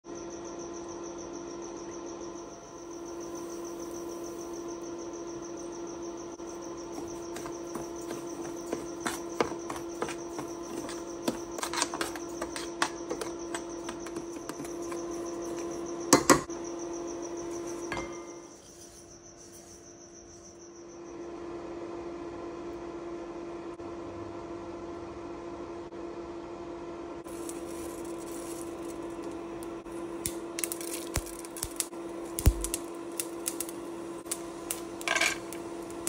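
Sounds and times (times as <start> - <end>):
metal spoon scraping a steel pan: 8.1 - 15.6.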